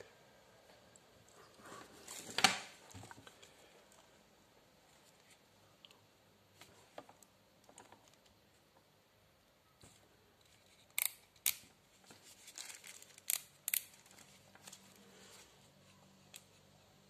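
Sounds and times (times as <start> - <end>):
plastic rustling: 11.9 - 13.3.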